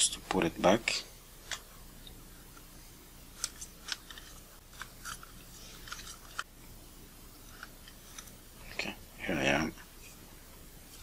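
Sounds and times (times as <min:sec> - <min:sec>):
plastic lens parts clicking: 0:01.4 - 0:02.7, 0:03.4 - 0:06.5.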